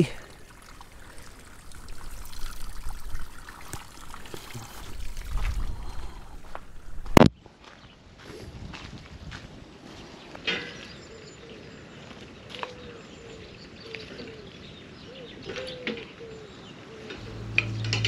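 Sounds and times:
music: 17.2 - 18.0.

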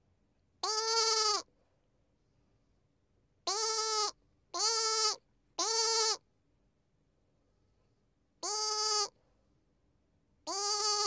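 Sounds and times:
lamb bleating: 0.6 - 1.5, 3.5 - 6.2, 8.4 - 9.2, 10.4 - 11.0.

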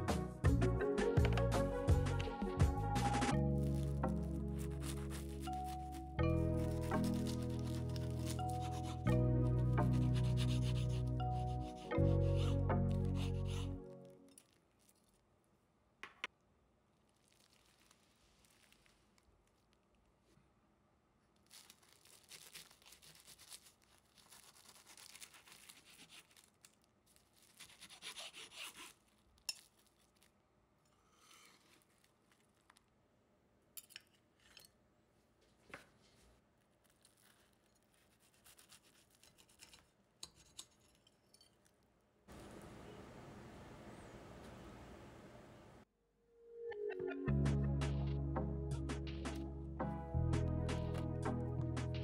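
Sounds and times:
background music: 0.0 - 14.3, 46.2 - 52.0
soft rustling and scraping: 17.1 - 20.5, 35.4 - 38.4.

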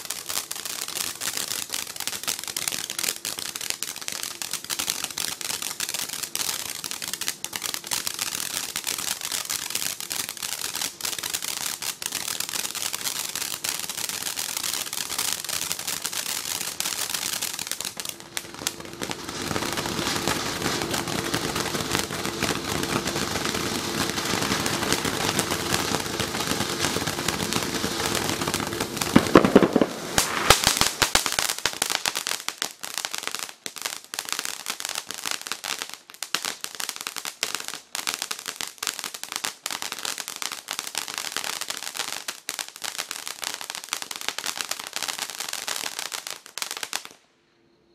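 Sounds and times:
loud burst of crackles: 0.0 - 33.8
firework fountain hissing and crackling: 0.0 - 47.3.

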